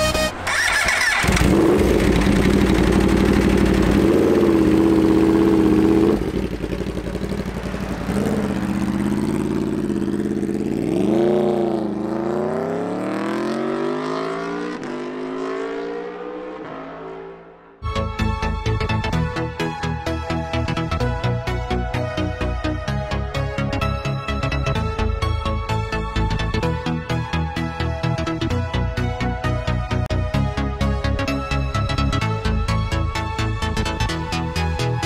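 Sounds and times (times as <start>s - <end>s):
motorcycle engine revving and accelerating: 0.5s - 17.8s.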